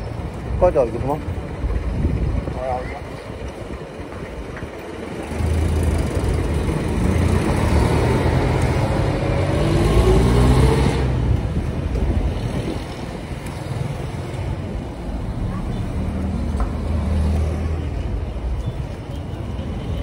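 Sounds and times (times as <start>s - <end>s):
traffic noise: 0.0s - 20.0s
vehicle engine accelerating: 5.1s - 12.9s.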